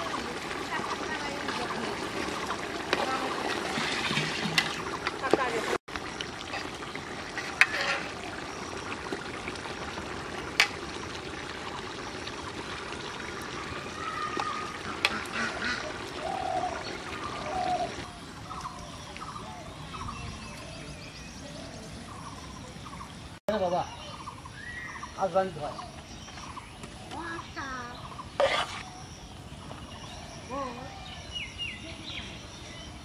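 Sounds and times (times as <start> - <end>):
gravy pouring and dripping: 0.0 - 19.5
ladle stirring curry in pot: 1.9 - 9.0, 28.3 - 29.0.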